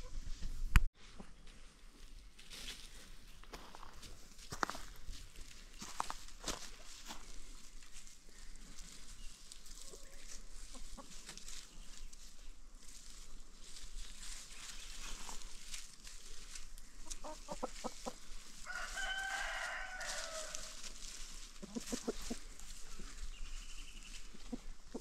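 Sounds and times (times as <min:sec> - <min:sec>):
chickens clucking: 0:05.8 - 0:25.0
rooster crowing: 0:18.6 - 0:20.8.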